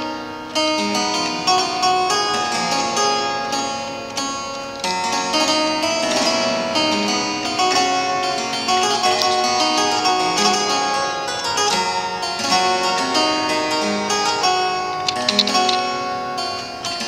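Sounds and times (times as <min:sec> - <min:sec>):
harpsichord playing: 0:00.0 - 0:17.0.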